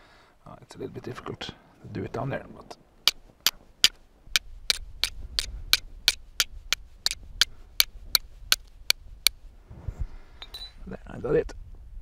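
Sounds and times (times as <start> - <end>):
fire steel striking flint clicks: 3.0 - 9.4.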